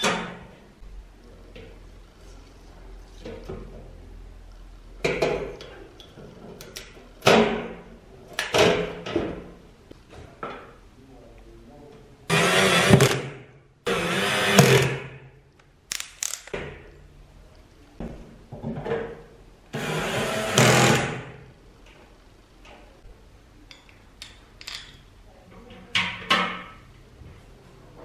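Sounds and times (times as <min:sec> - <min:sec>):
knocks and clicks of handling parts: 0:05.0 - 0:07.8, 0:18.0 - 0:19.3, 0:23.7 - 0:25.0.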